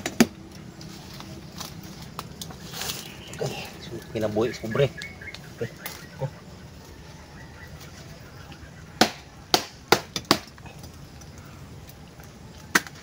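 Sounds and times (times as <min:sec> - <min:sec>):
machete chopping bamboo: 0:09.0 - 0:10.6.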